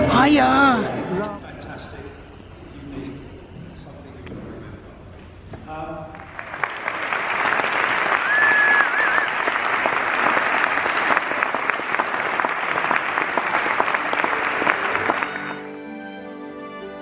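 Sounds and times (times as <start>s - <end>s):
audience applauding: 6.1s - 15.9s
short wavering whistle: 8.2s - 9.4s.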